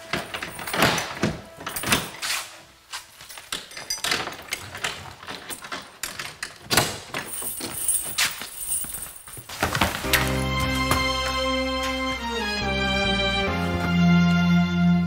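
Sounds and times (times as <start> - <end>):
keys and lock clicking: 0.0 - 2.4, 3.2 - 9.2
footsteps: 0.0 - 3.5, 7.3 - 14.6.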